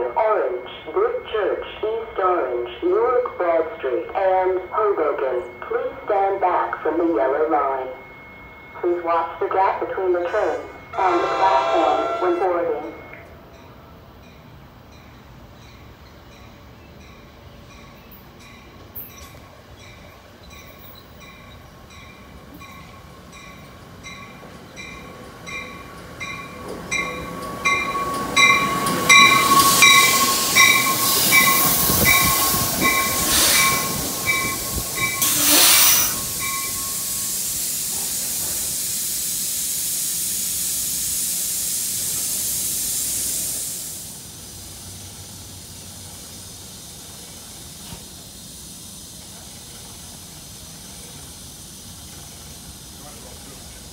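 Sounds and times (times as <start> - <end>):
train wheel and brake noise: 0.0 - 53.9
train bell ringing: 2.9 - 37.4
steady air hiss: 26.4 - 53.9
sharp air blasts: 29.6 - 44.2.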